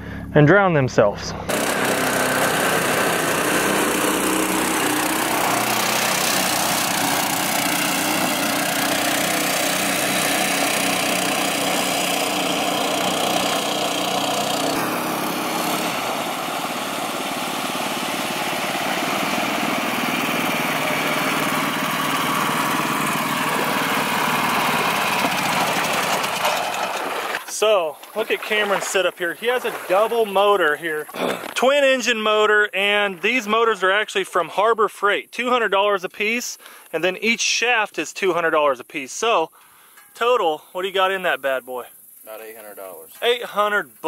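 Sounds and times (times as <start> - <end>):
small gas engines running: 1.3 - 31.6.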